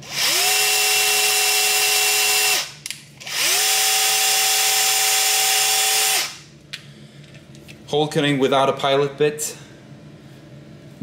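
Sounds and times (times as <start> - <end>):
cordless drill whining: 0.0 - 6.4.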